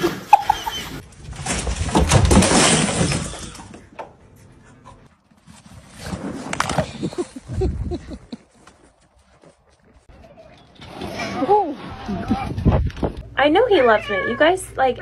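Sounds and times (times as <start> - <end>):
plastic bricks crashing and clattering: 1.2 - 3.7.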